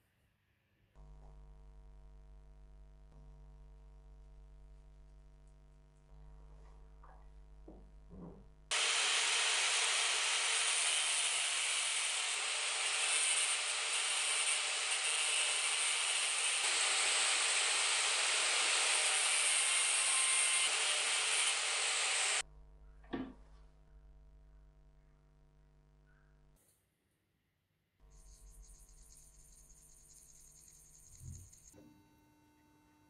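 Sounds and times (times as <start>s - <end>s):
angle grinder grinding steel: 8.7s - 22.4s.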